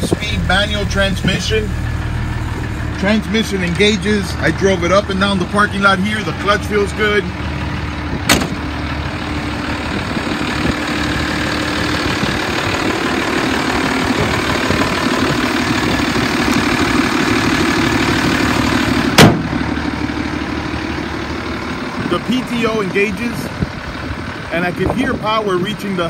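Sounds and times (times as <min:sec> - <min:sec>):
diesel engine idling: 0:00.0 - 0:26.0
sharp thump: 0:08.2 - 0:08.7, 0:19.2 - 0:19.6.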